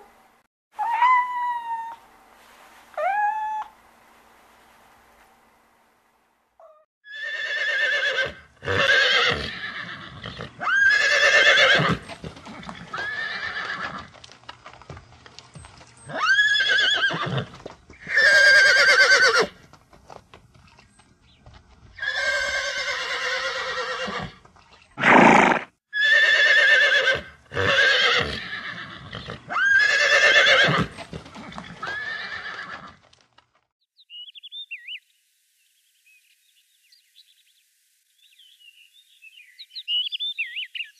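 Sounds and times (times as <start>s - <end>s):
horses whinnying: 7.1s - 14.1s, 16.0s - 19.6s, 22.0s - 24.4s, 25.0s - 33.0s.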